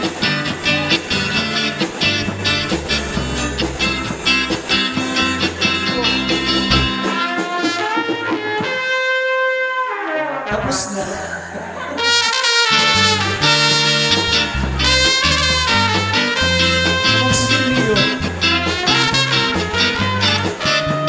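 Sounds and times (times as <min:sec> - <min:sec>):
live band playing cha-cha: 0:00.0 - 0:09.0, 0:12.0 - 0:21.0
trumpet melody: 0:00.0 - 0:11.0, 0:12.0 - 0:21.0.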